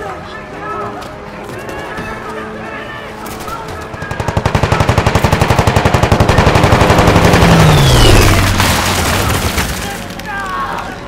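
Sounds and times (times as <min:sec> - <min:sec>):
rapid machine-gun fire: 0:03.9 - 0:09.8.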